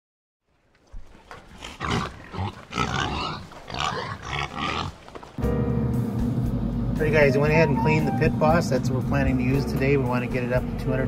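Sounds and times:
pigs grunting and oinking: 0:01.5 - 0:05.0.

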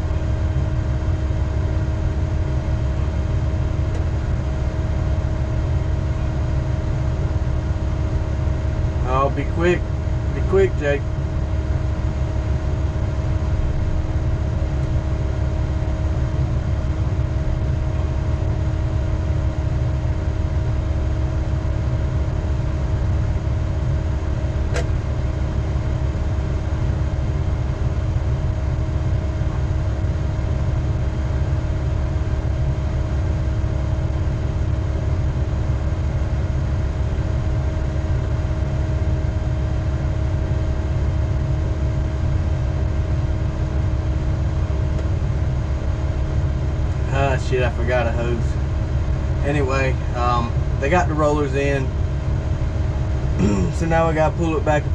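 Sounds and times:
diesel engine idling: 0:00.0 - 0:34.4, 0:42.4 - 0:54.9
sharp click: 0:24.7 - 0:25.0.

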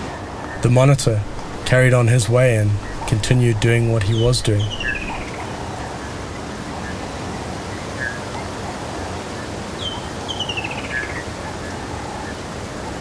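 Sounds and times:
outdoor ambience hiss: 0:00.0 - 0:13.0
faint bird chirps: 0:02.8 - 0:06.2
falling whistled call: 0:03.8 - 0:05.4.

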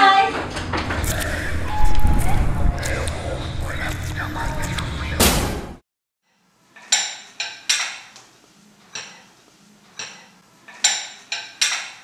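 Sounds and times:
cutlery and dishes clinking: 0:06.8 - 0:08.2, 0:08.9 - 0:09.3, 0:09.9 - 0:12.0.

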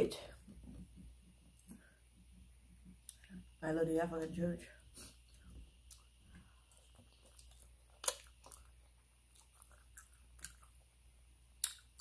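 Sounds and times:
close-up chewing: 0:05.1 - 0:12.0.

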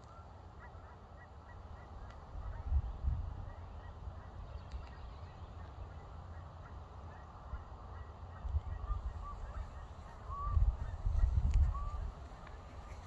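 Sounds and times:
wind rumbling on microphone: 0:01.8 - 0:05.6, 0:08.3 - 0:13.0.

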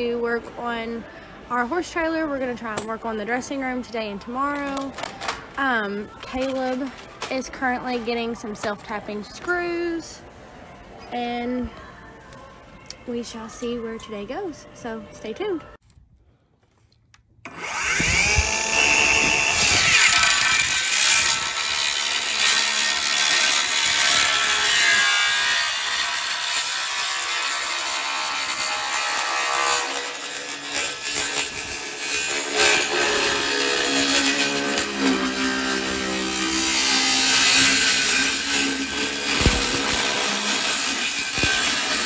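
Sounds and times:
circular saw cutting wood: 0:17.5 - 0:42.0.

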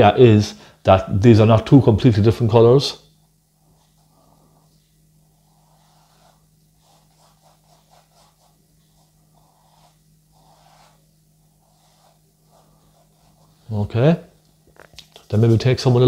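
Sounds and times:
steady low hum: 0:00.0 - 0:16.0
paintbrush brushing on canvas: 0:03.6 - 0:14.0, 0:15.2 - 0:16.0.

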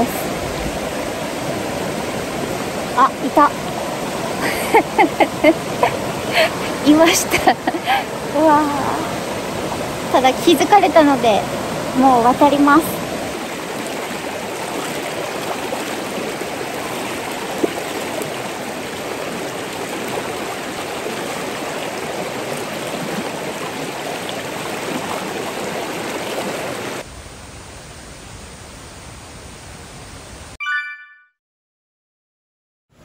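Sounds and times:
stream rushing over stones: 0:00.0 - 0:27.1.

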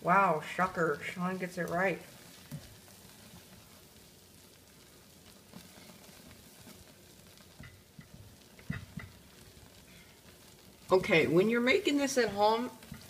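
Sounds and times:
spatula stirring and scraping pot: 0:00.5 - 0:11.0, 0:11.9 - 0:13.0
soft knocks against pot: 0:07.6 - 0:09.2.

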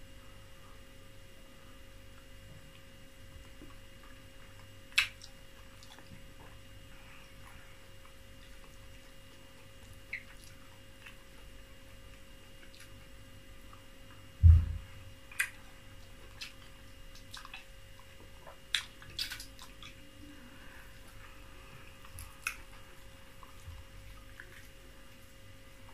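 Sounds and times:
mouth clicks and smacks while chewing: 0:02.1 - 0:06.7, 0:07.3 - 0:11.5, 0:12.1 - 0:14.3, 0:15.3 - 0:20.0, 0:22.0 - 0:25.9
wet smacks licking fingers: 0:04.9 - 0:06.1
loud low thump: 0:14.4 - 0:15.0.

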